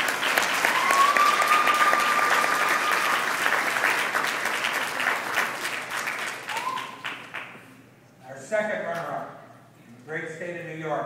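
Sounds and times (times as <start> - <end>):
audience applauding: 0.0 - 7.6
short rising whistle: 6.5 - 7.0.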